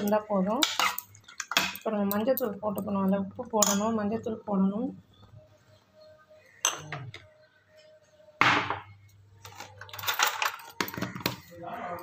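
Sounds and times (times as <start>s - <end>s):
glass jars clinking: 0.0s - 4.0s, 9.4s - 12.0s.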